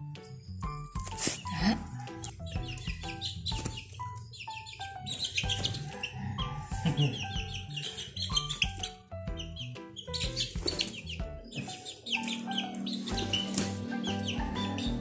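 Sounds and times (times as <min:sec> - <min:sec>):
chicks peeping: 0:01.0 - 0:15.0
background music with bass line: 0:05.1 - 0:15.0.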